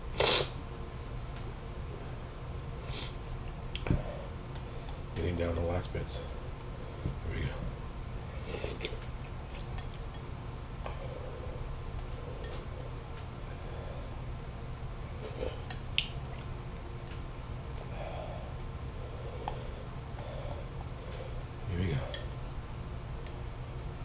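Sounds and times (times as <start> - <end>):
low steady hum: 0.0 - 24.0
person slurping noodles: 0.2 - 0.5.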